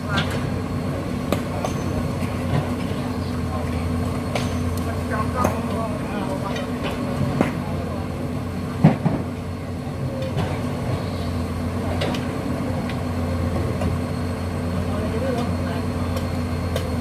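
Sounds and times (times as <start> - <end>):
excavator engine idling: 0.0 - 17.0.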